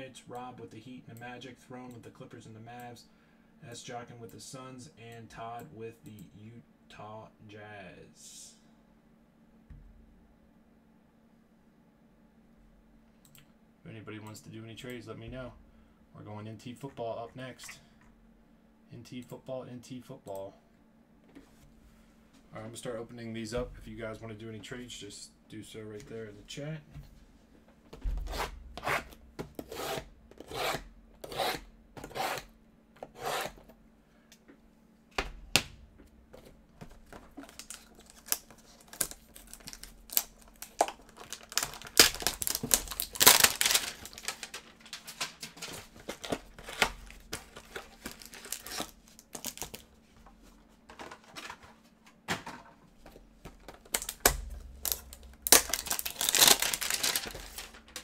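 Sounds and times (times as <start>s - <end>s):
cardboard boxes being torn open: 37.5s - 44.4s, 54.8s - 57.6s.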